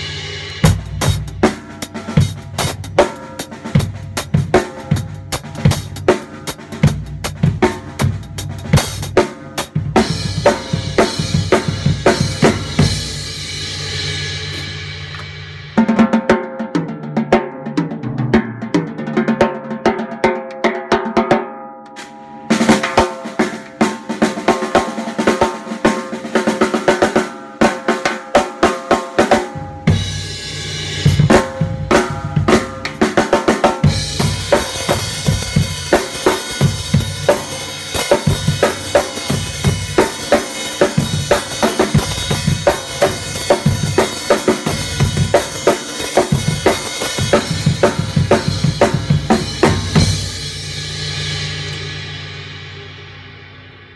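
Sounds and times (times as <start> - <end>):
bass drum: 0.0 - 15.6, 29.5 - 52.0
snare drum rolls and rim shots: 17.8 - 29.9, 31.1 - 50.3.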